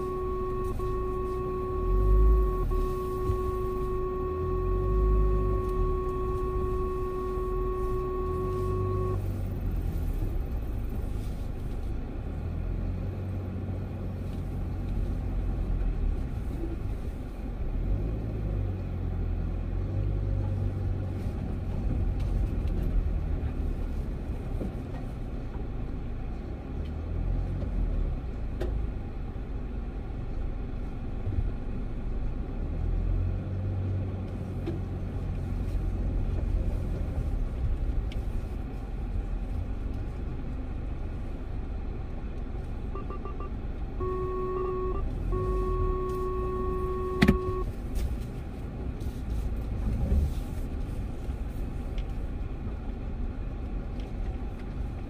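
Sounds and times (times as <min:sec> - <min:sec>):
short electronic beeping: 0:00.0 - 0:09.2, 0:43.0 - 0:47.7
car engine and tyres rumbling: 0:00.0 - 0:55.0.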